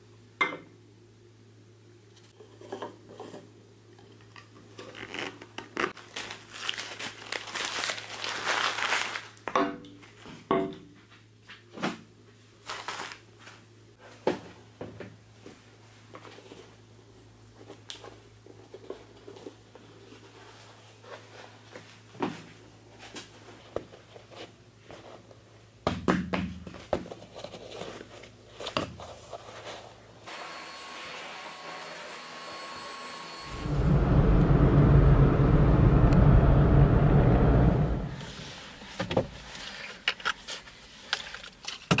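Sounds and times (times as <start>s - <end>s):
steady low hum: 33.4s - 38.7s.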